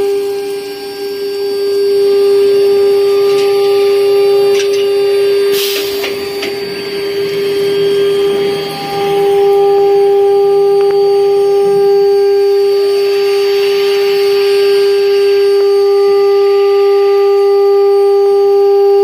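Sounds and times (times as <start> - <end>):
router spindles whining: 0.0 - 18.0
cutting hiss: 2.0 - 16.7.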